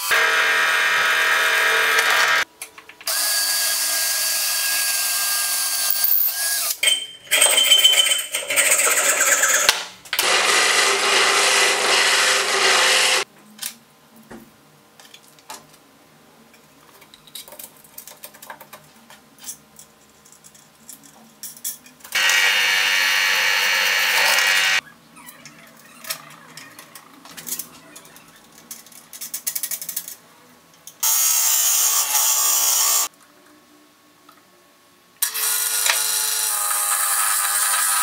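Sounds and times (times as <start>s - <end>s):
disc sander running: 0.1s - 2.4s, 10.2s - 13.3s, 22.2s - 24.8s
drill press boring into wood: 0.1s - 2.4s, 10.2s - 13.2s, 22.2s - 24.8s
wood lathe turning: 8.4s - 13.3s, 22.2s - 24.8s.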